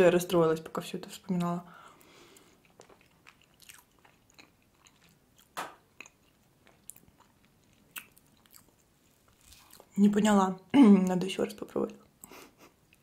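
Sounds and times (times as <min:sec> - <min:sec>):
soft chewing: 0:01.3 - 0:10.0, 0:10.6 - 0:13.0
wet mouth and lip clicks: 0:02.6 - 0:08.8.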